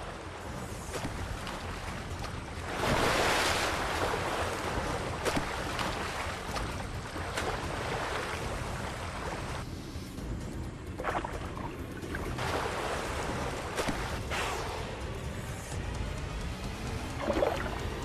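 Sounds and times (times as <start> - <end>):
sea water rushing and surging: 0.0 - 18.0
short sharp splashes: 0.9 - 8.5, 12.1 - 14.6.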